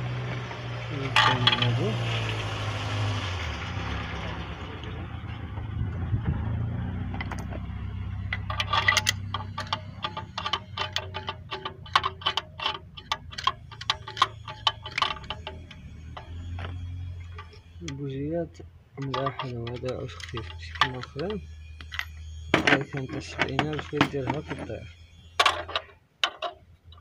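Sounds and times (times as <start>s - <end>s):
steady low hum: 4.7s - 26.2s
ratchet wrench clicking: 8.2s - 16.4s.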